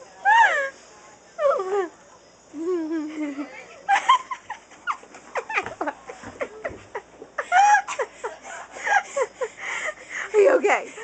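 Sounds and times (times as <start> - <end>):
girls laughing and giggling: 2.6 - 11.0.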